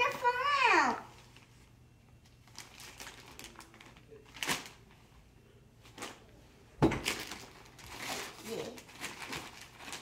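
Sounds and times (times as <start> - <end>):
plastic bag crinkling: 2.2 - 5.0, 7.0 - 10.0.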